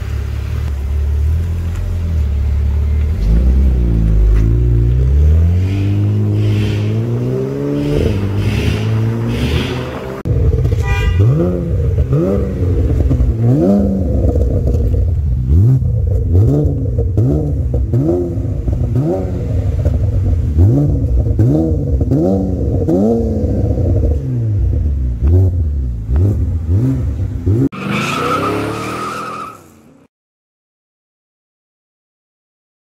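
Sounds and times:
car engine revving: 0.0 - 29.3.

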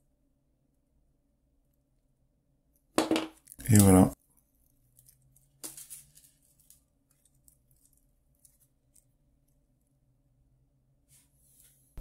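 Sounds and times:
faint ventilation hum: 0.0 - 12.0
chain bracelet clicking and rustling: 4.9 - 9.1.

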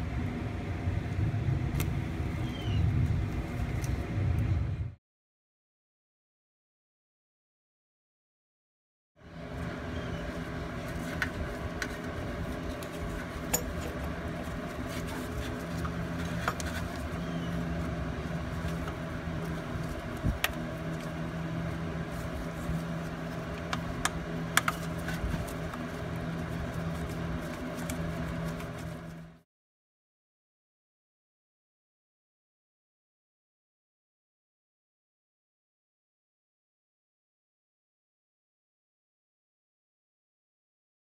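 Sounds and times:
steady low hum: 0.0 - 5.0, 9.2 - 29.4.

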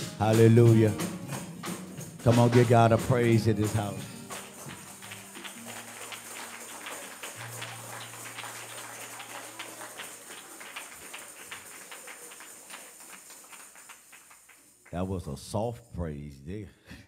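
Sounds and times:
hand clapping: 0.0 - 15.3
tambourines jingling: 0.0 - 16.0.

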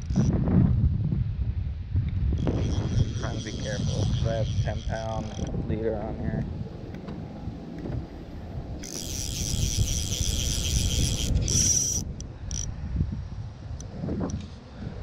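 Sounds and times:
wind and handling rumble: 0.0 - 15.0
fishing reel drag buzzing: 2.4 - 5.6, 8.8 - 12.7
reel clicks: 2.4 - 5.6, 8.8 - 12.7.

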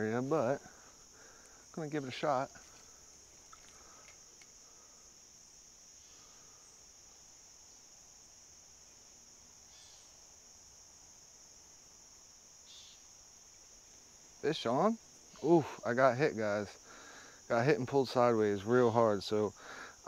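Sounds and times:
insect chorus trilling: 0.0 - 20.0.

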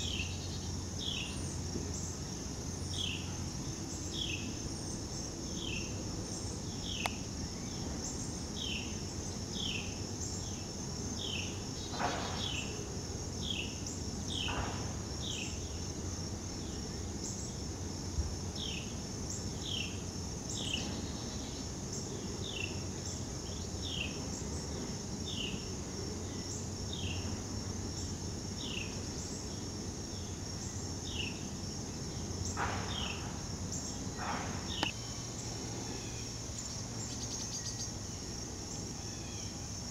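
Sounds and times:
high-pitched insect drone: 0.0 - 39.9.

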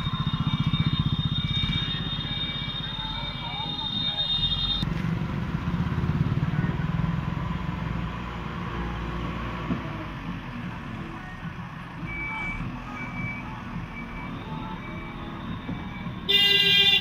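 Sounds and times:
reversing alarm beeping: 0.0 - 4.8, 12.0 - 17.0
diesel engine running: 0.0 - 16.2.

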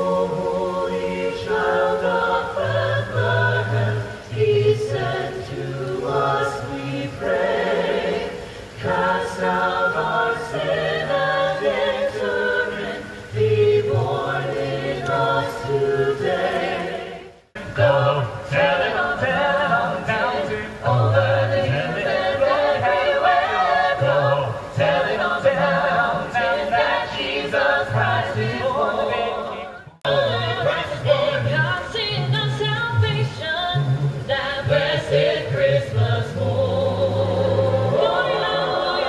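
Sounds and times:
choir singing in harmony: 0.0 - 39.0.

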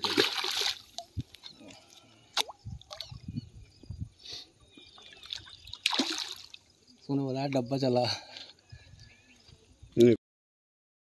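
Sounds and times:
water splashing: 0.0 - 3.2, 4.9 - 6.7
small drips and plops: 5.0 - 6.6.

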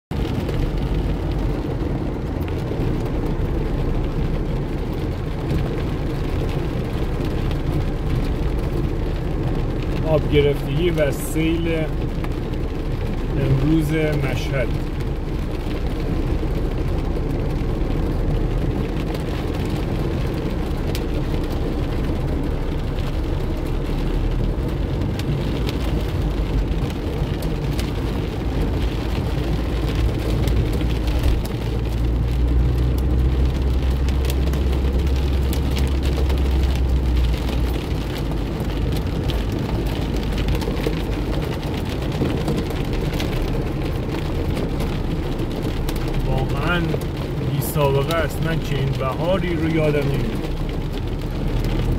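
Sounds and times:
heavy rain on car roof: 0.1 - 51.9.

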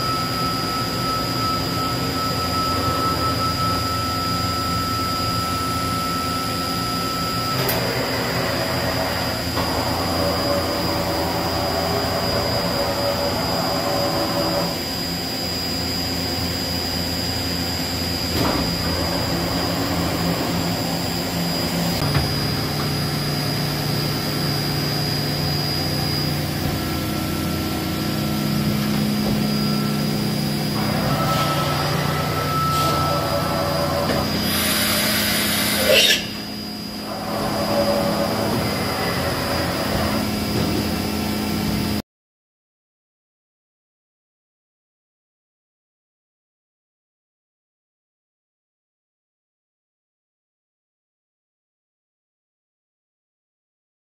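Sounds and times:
machine hum with pitched whines: 0.0 - 42.0.

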